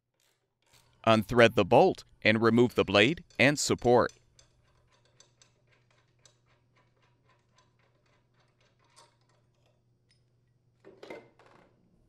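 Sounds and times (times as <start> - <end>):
metal clicks and clinks: 2.8 - 10.3.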